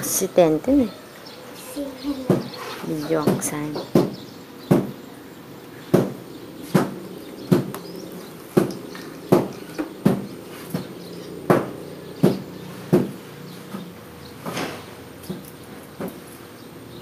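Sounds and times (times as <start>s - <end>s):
sharp ringing knocks: 8.6s - 13.2s.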